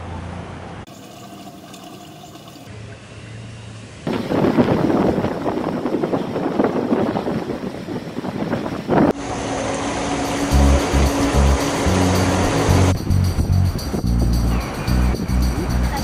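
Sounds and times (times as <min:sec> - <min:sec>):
wind buffeting microphone: 0:04.1 - 0:09.2.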